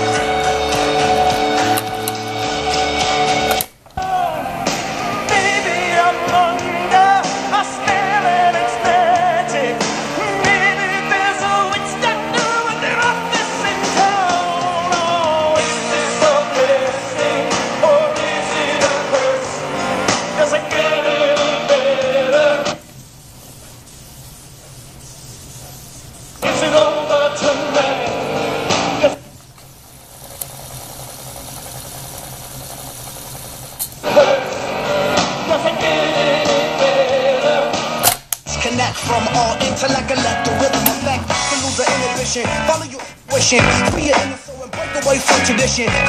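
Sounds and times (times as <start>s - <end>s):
pop song on car radio: 0.0s - 22.9s, 26.4s - 29.3s, 34.0s - 46.0s
low tape hiss: 0.0s - 30.1s.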